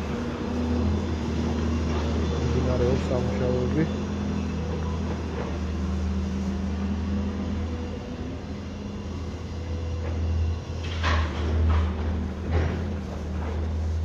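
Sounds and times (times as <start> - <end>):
heavy machinery engine humming: 0.0 - 14.0.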